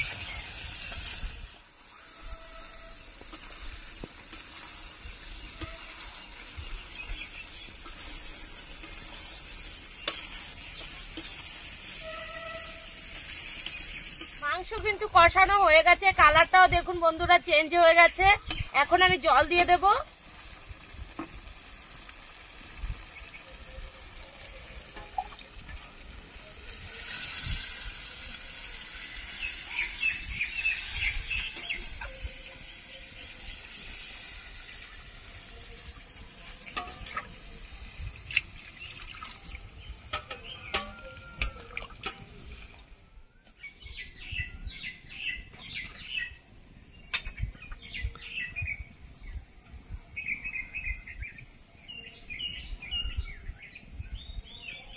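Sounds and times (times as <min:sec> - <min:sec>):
birds chirping: 0:00.0 - 0:20.0, 0:28.2 - 0:54.9
water splashing into pot: 0:03.1 - 0:12.0, 0:18.5 - 0:32.3, 0:33.2 - 0:43.0
spoon knocking against pot: 0:40.1 - 0:41.7.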